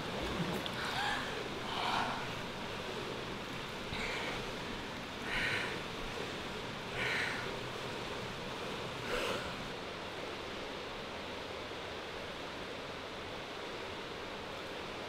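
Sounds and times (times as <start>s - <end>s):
pool water splashing: 0.0s - 9.8s.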